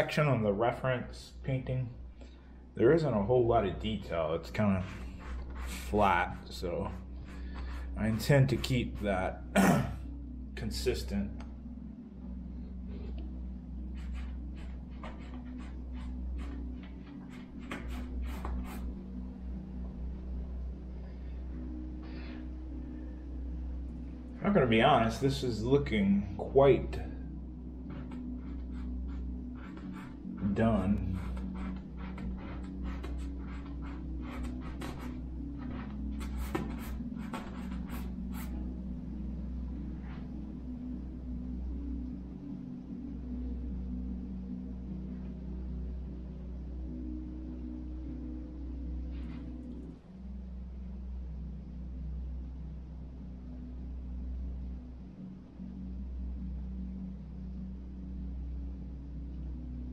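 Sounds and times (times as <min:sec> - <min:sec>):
low hum: 0:00.0 - 0:59.9
paintbrush scrubbing strokes: 0:04.4 - 0:09.1, 0:13.9 - 0:19.0, 0:27.8 - 0:38.6.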